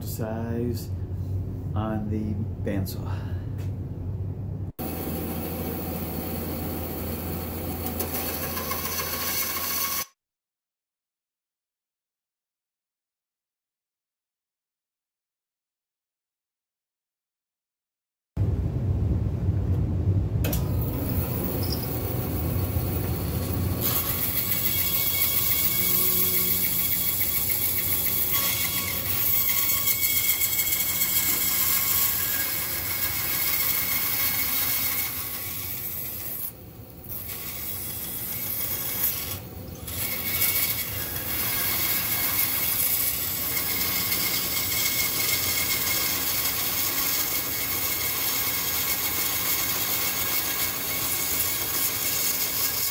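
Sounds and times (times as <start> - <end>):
bandsaw cutting wood: 4.8 - 10.2, 20.9 - 52.9.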